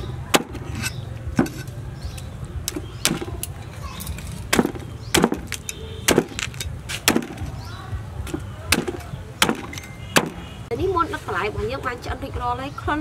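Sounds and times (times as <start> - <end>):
cleaver chopping on wooden board: 0.3 - 1.7, 2.7 - 3.4, 4.5 - 7.6, 8.2 - 10.5.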